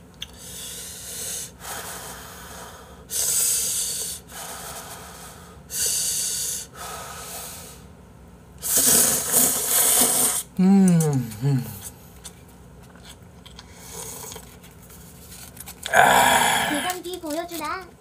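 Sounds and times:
breathy blowing on noodles: 0:08.6 - 0:10.5.

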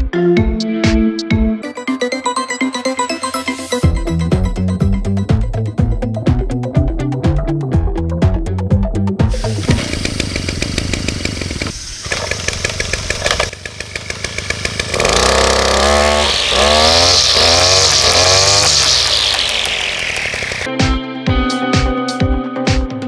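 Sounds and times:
brush cutter engine revving: 0:09.4 - 0:20.7.

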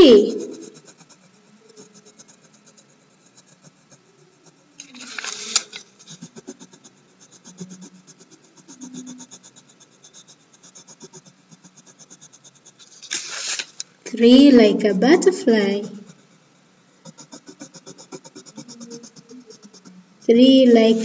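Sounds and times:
crayon scratching on paper: 0:00.0 - 0:21.0
paper rustling: 0:04.8 - 0:05.9, 0:12.8 - 0:13.9.

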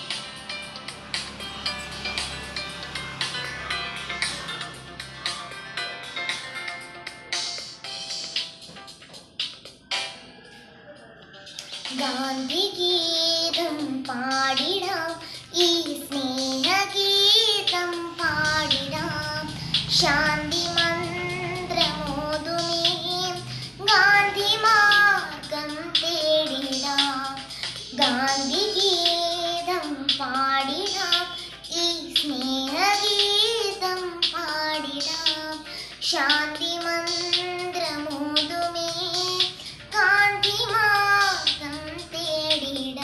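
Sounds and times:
girl singing: 0:11.6 - 0:43.0.

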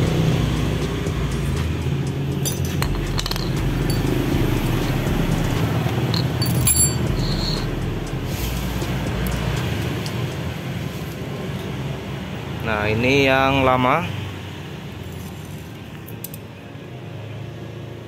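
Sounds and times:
background music: 0:00.0 - 0:14.1.

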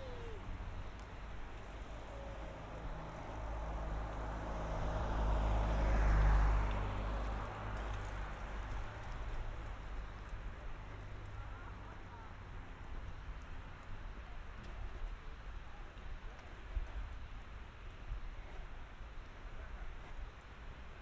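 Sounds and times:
motor vehicle passing by: 0:00.0 - 0:13.5.

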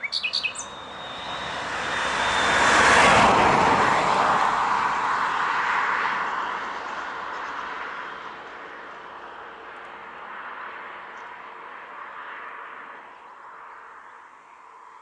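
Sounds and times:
vehicle passing by: 0:00.1 - 0:11.0.

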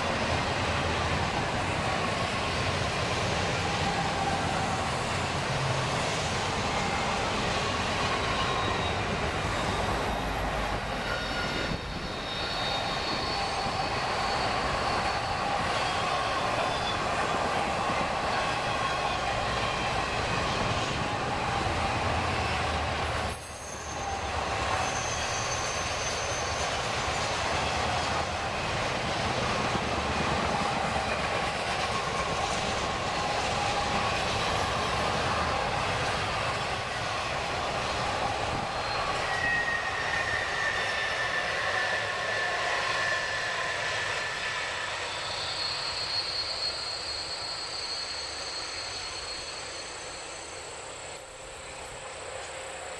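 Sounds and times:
train wheels rumbling on rails: 0:00.0 - 0:52.9
high flange squeals: 0:06.0 - 0:28.3, 0:32.4 - 0:52.9.

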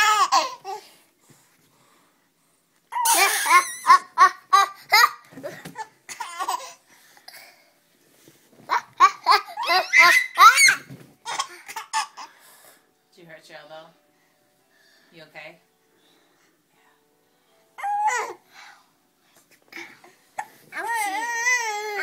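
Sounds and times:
baby and girl giggling: 0:03.0 - 0:06.8.

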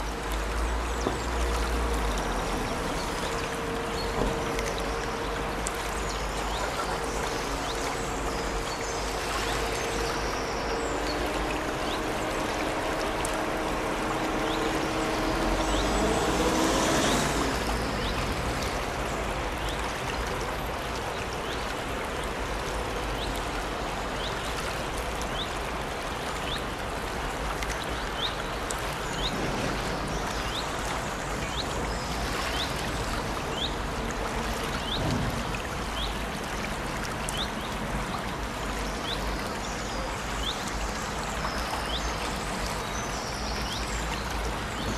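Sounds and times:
engine hum: 0:00.0 - 0:24.2
brook babbling: 0:00.0 - 0:44.9.

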